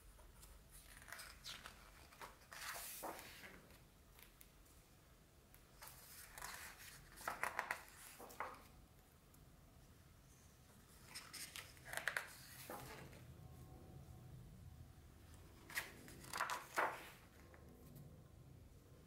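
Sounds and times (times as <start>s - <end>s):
book pages turning: 0.4s - 4.5s, 5.8s - 8.7s, 11.0s - 13.2s, 15.6s - 17.5s.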